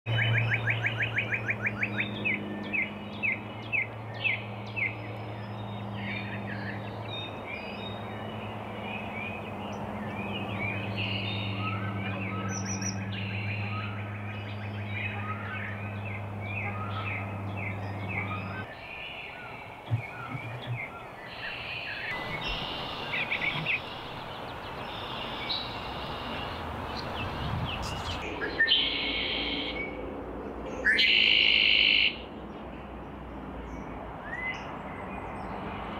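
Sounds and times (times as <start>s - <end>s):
songbirds chirping: 0.1s - 35.9s
steady low hum: 0.2s - 28.4s.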